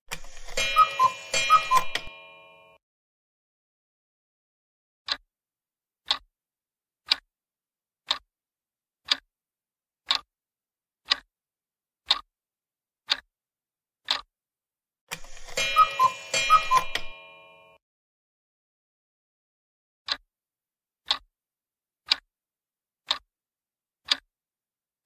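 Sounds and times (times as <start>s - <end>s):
countdown clock ticking: 0.1s - 2.8s, 6.1s - 6.3s, 8.1s - 8.3s, 10.1s - 10.3s, 11.1s - 11.3s, 12.1s - 12.3s, 14.1s - 14.3s, 15.1s - 17.8s
ringing two-note chime: 0.6s - 2.8s, 15.5s - 17.8s.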